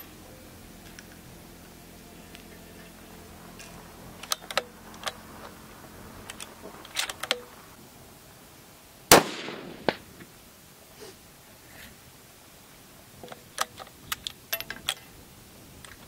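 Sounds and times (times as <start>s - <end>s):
sharp crack: 2.3s - 7.8s, 9.1s - 10.4s
rifle shot echoing: 9.1s - 10.2s.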